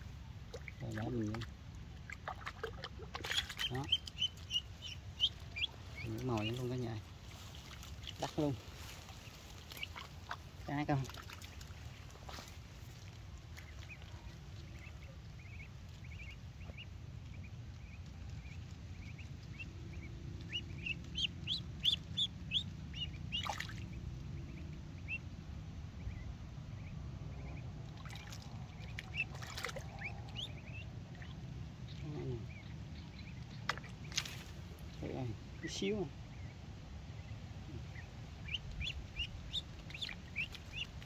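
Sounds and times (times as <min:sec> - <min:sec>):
steady low rumble: 0:00.0 - 0:41.0
duckling peeping: 0:02.1 - 0:41.0.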